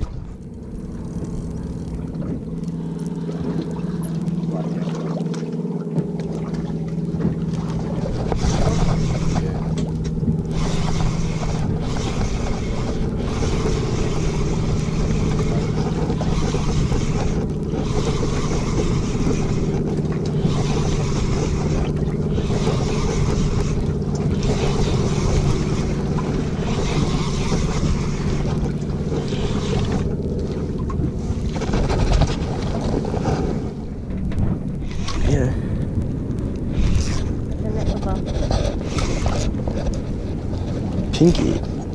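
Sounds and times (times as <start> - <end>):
outboard motor idling: 0.0 - 41.9
wind noise on microphone: 30.8 - 41.9.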